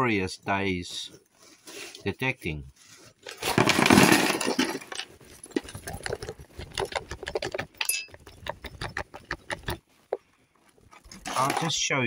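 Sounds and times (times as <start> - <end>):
small clicks and knocks: 5.0 - 10.3.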